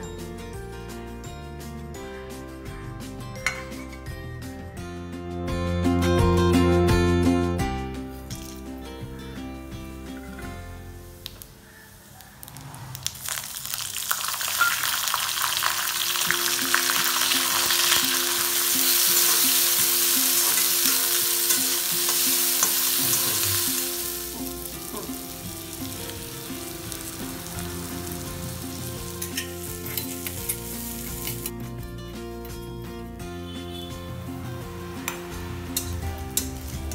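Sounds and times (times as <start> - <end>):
food sizzling in hot oil: 12.0 - 31.5, 34.9 - 36.9.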